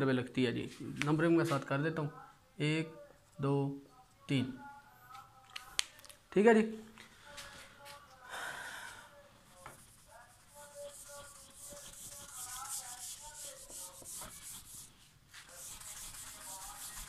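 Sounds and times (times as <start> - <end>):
eraser rubbing on whiteboard: 9.7 - 17.0.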